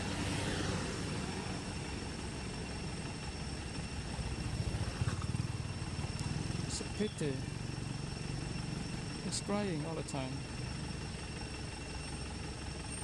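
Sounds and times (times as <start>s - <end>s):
low rumble with rapid flutter: 0.8s - 6.8s.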